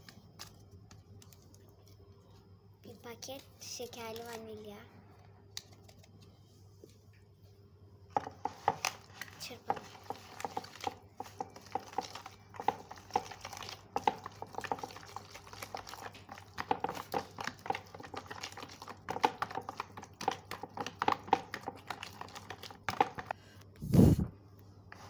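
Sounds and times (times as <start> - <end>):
wet batter slapping: 8.2 - 23.3.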